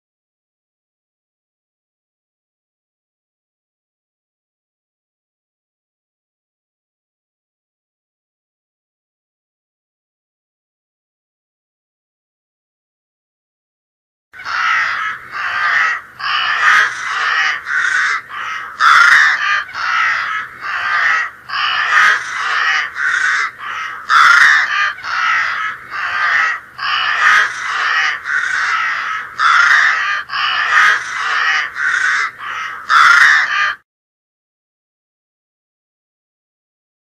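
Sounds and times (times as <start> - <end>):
crows cawing: 14.4 - 33.8.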